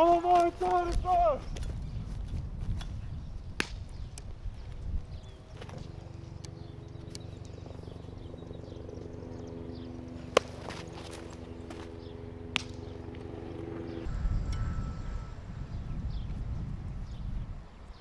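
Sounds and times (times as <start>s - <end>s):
low hum of held tones: 1.4s - 18.0s
baseball popping into glove: 10.3s - 11.8s.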